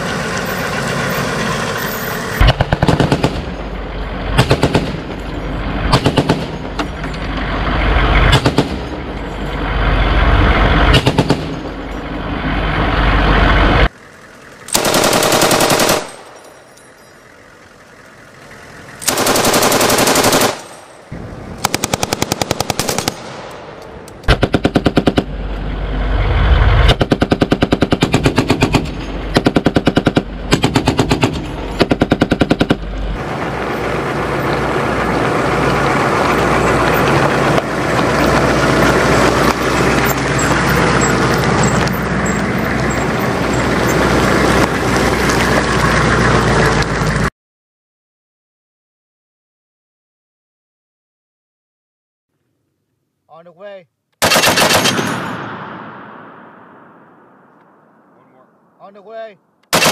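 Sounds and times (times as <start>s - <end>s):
low engine rumble: 0.0s - 47.3s
machine gun bursts: 14.7s - 16.3s, 19.0s - 20.8s, 54.2s - 55.2s.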